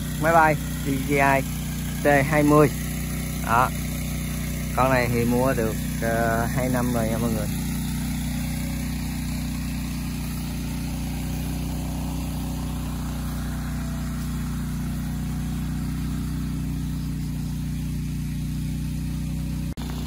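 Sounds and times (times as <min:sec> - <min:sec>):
generator engine running: 0:00.0 - 0:20.0.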